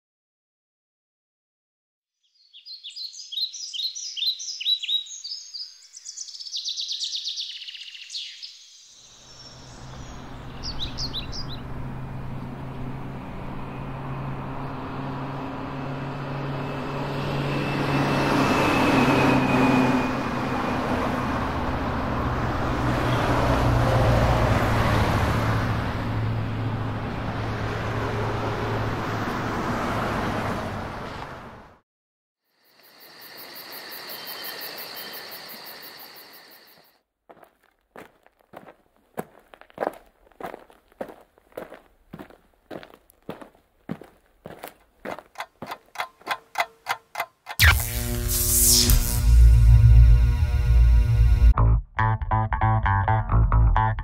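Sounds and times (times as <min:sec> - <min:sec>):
birds chirping: 0:02.3 - 0:13.0
road traffic hum: 0:09.2 - 0:31.8, 0:40.3 - 0:51.6.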